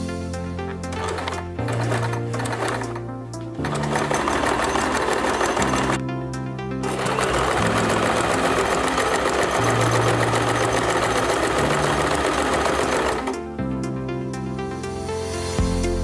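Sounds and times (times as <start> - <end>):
sewing machine stitching: 0.8 - 3.0, 3.6 - 6.0, 6.8 - 13.4.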